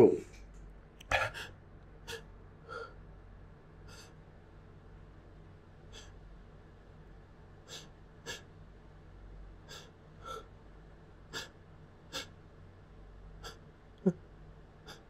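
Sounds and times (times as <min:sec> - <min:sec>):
person sniffing: 0:09.7 - 0:10.5.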